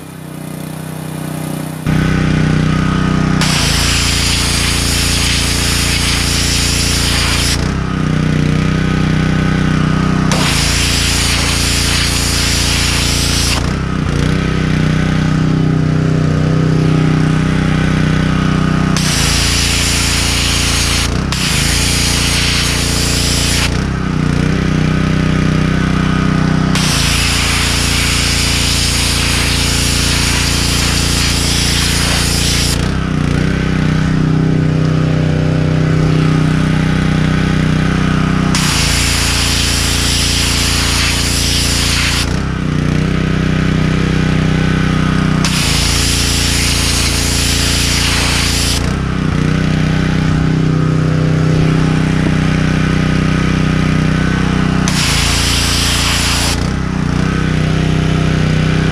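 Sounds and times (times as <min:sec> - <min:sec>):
pressure washer engine running: 0:00.0 - 0:58.9
water jet hissing: 0:03.4 - 0:07.6, 0:10.3 - 0:13.7, 0:19.0 - 0:23.8, 0:26.7 - 0:32.8, 0:38.5 - 0:42.4, 0:45.4 - 0:49.0, 0:54.8 - 0:56.8.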